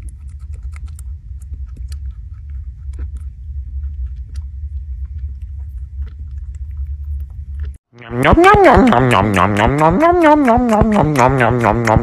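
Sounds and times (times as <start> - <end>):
low rumble: 0.0 - 12.0
rabbit chewing fruit: 0.0 - 12.0.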